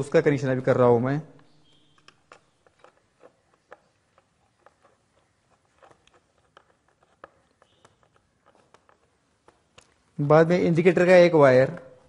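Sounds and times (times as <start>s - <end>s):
faint clicks and taps: 1.3s - 10.4s.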